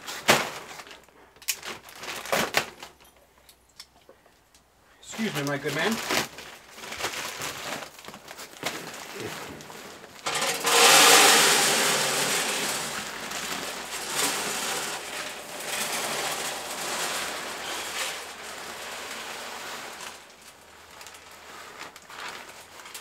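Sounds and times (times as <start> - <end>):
pellets pouring into hopper: 5.1 - 23.0.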